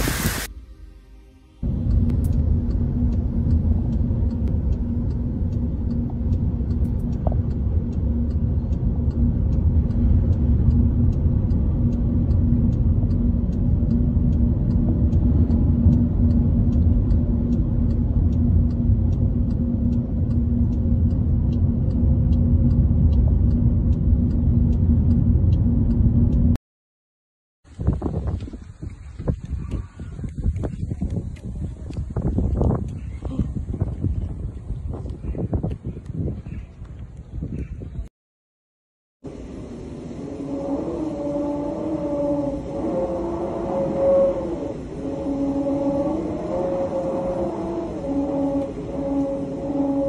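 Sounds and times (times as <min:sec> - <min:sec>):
car road and engine rumble: 0:00.0 - 0:26.6, 0:27.7 - 0:37.8, 0:39.2 - 0:50.0
faint regular ticking: 0:01.6 - 0:26.6.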